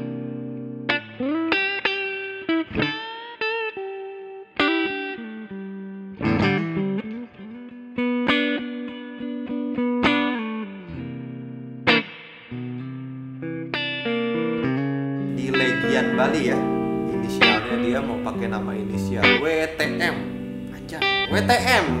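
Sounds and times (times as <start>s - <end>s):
electric guitar lick: 0.0s - 22.0s.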